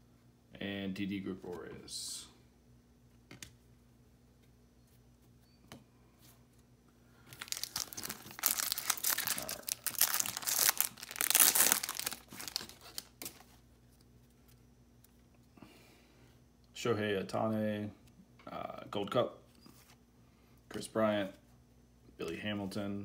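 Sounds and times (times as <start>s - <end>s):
foil wrapper crinkling and tearing: 7.4s - 13.5s.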